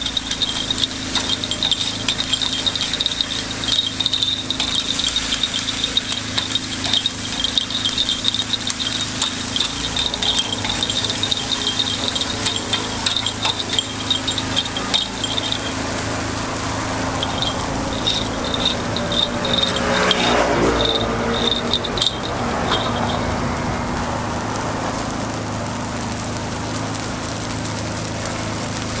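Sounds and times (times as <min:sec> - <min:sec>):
metal picks clicking on griddle: 0:00.0 - 0:29.0.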